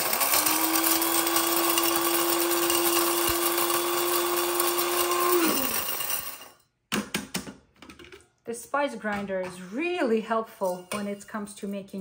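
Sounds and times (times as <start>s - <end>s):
electric spice grinder whirring: 0.0s - 6.5s.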